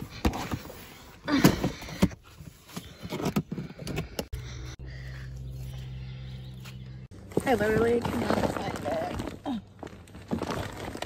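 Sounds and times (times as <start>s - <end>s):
rummaging through bags: 7.2s - 11.0s.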